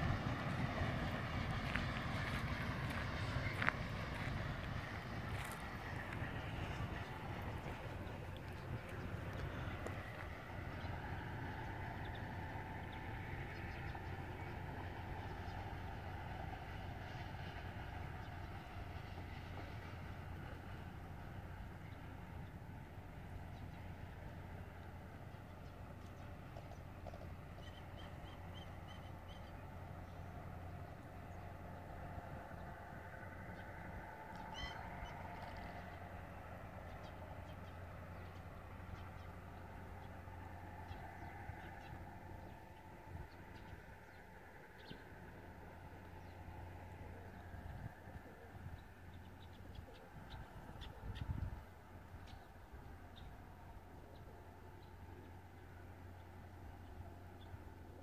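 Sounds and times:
distant freight train rumbling: 0:00.0 - 0:58.0
pitched bird call: 0:34.4 - 0:34.9.

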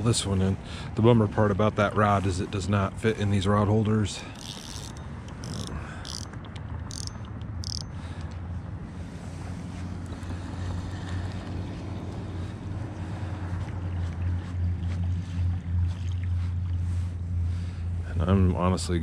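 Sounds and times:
spinning reel cranking: 0:04.3 - 0:07.9.

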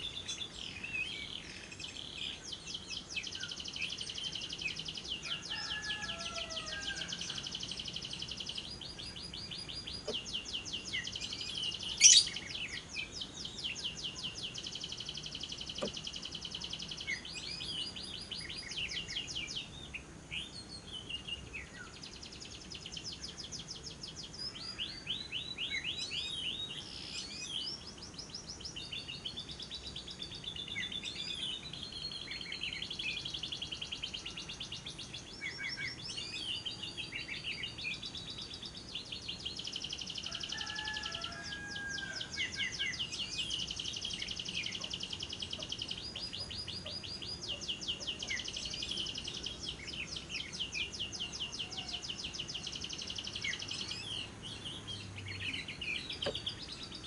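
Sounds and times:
lovebird chattering song: 0:00.0 - 0:41.4
lower bird chirps: 0:00.0 - 0:57.0.

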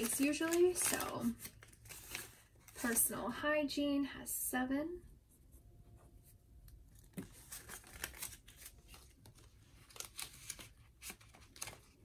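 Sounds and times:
paper bills and plastic rustling: 0:00.0 - 0:03.2, 0:06.9 - 0:12.0.

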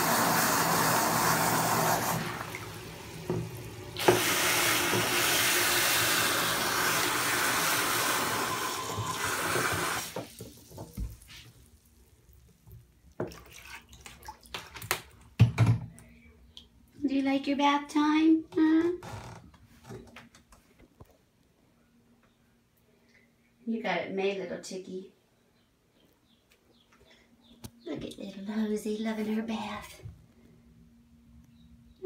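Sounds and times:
water running into bathtub: 0:00.0 - 0:15.3
small splashes and clicks: 0:12.6 - 0:15.3.

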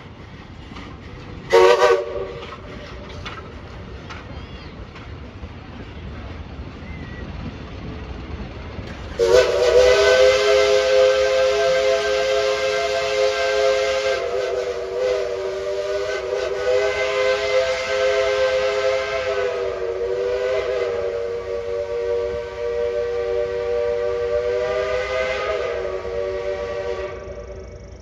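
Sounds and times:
steam hissing: 0:00.0 - 0:28.0
steam locomotive chime whistle: 0:01.5 - 0:03.0, 0:09.1 - 0:28.0.

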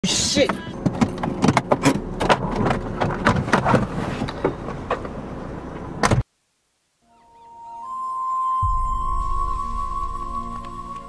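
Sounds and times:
soft music: 0:07.0 - 0:11.0.

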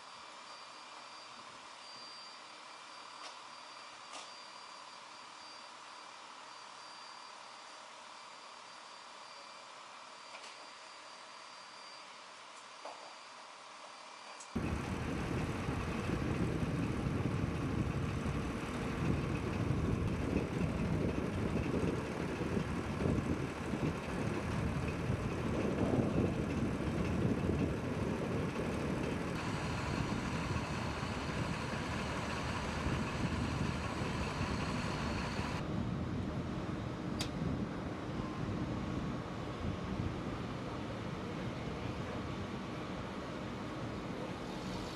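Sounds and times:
heavy equipment engines rumbling: 0:14.6 - 0:37.1.

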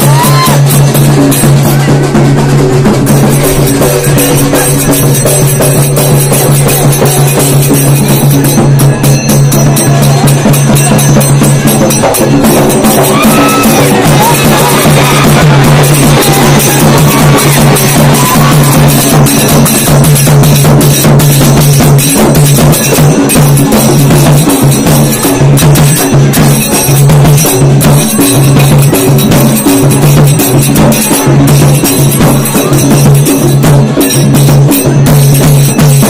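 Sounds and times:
barrel drums beating fast: 0:00.0 - 0:36.0.

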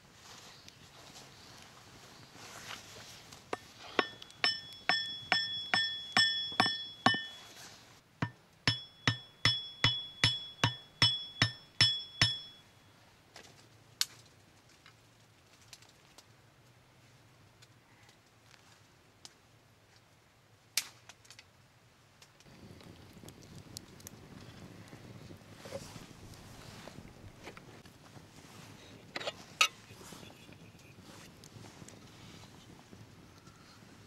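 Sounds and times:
hammer blows on metal: 0:03.6 - 0:07.6, 0:08.2 - 0:12.6.

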